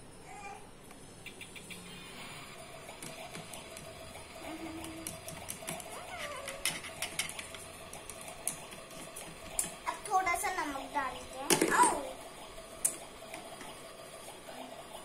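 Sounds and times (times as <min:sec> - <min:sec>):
faint steady hum: 0:00.0 - 0:15.0
plastic toy utensils clicking: 0:04.8 - 0:09.8.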